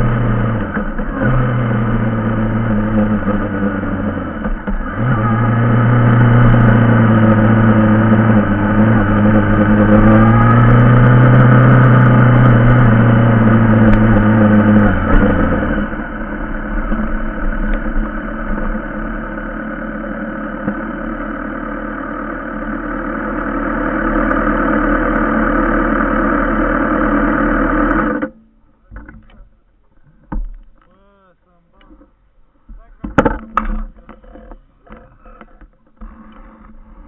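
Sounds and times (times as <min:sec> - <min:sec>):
motorcycle engine running: 0:00.0 - 0:28.5.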